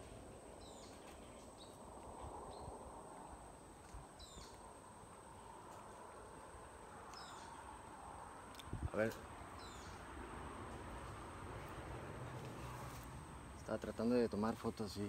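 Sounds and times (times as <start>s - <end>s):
birds chirping: 0.0s - 10.2s.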